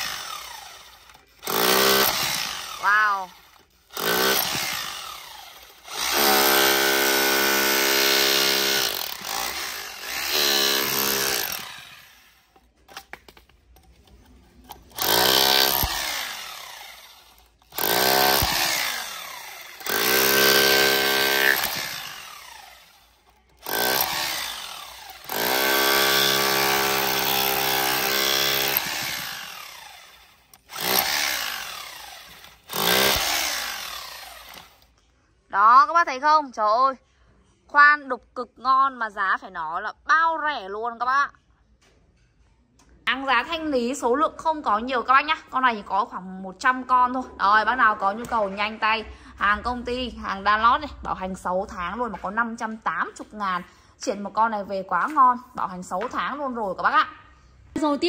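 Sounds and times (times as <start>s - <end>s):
motor winding down: 0.0s - 12.5s, 14.9s - 34.9s
rotary hammer chiselling concrete: 0.0s - 12.8s, 14.6s - 34.9s.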